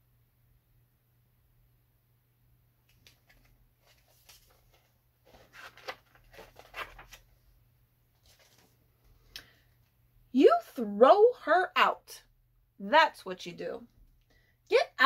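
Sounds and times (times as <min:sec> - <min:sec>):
book pages rustling and turning: 0:02.9 - 0:07.4, 0:08.1 - 0:09.3.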